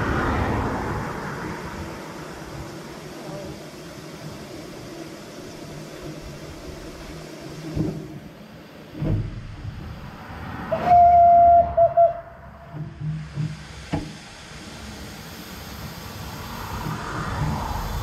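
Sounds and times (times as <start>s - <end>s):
car passing: 0.0s - 5.1s, 9.0s - 13.9s, 14.5s - 18.0s
locomotive engine and wheels running: 0.0s - 18.0s
steam whistle: 10.7s - 12.4s.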